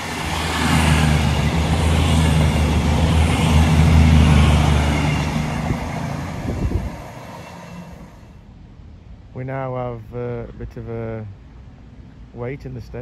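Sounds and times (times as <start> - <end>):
diesel train passing: 0.0 - 10.0.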